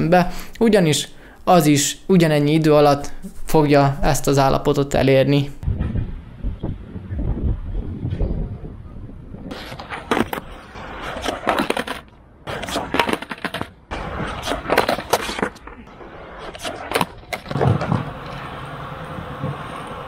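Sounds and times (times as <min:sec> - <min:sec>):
skateboard wheels rolling: 0:06.2 - 0:20.0
skateboard clacking on concrete: 0:09.5 - 0:15.8, 0:16.5 - 0:20.0.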